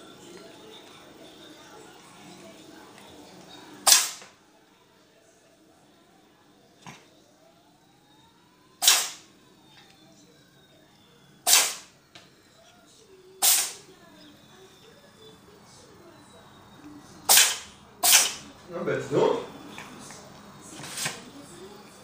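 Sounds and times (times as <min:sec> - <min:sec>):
cat sneezing: 0:03.9 - 0:04.2, 0:08.8 - 0:09.2, 0:11.5 - 0:11.9, 0:13.4 - 0:13.8, 0:17.3 - 0:18.5.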